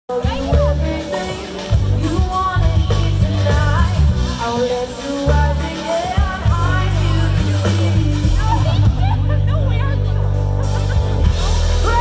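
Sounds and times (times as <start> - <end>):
person singing: 0.1 - 9.3
heavy bass line: 0.1 - 12.0
live band music over speakers: 0.1 - 12.0.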